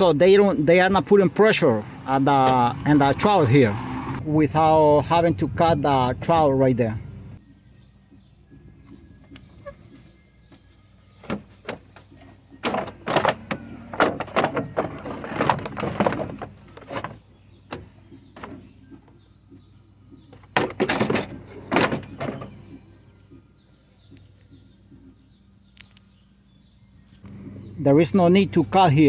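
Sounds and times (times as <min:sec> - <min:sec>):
car parts knocking and rattling: 0:08.2 - 0:25.3.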